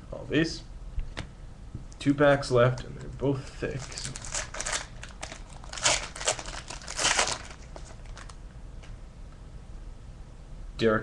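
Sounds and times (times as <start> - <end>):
wrapper crinkling and tearing: 3.6 - 8.4.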